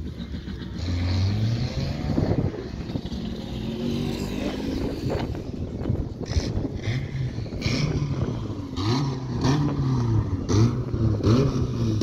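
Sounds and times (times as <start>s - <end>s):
vehicle engine revving: 0.0s - 12.0s.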